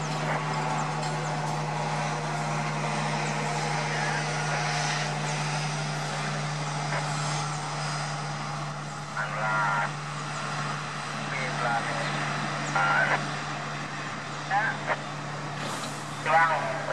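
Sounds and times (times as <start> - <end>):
train wheels rushing on rails: 0.0 - 8.9
constant low hum: 0.0 - 16.9.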